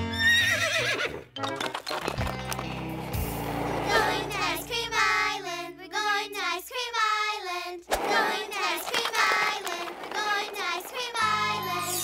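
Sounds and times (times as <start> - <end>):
backing music: 1.3 - 6.4, 8.0 - 12.0
child-like voices singing: 3.8 - 12.0.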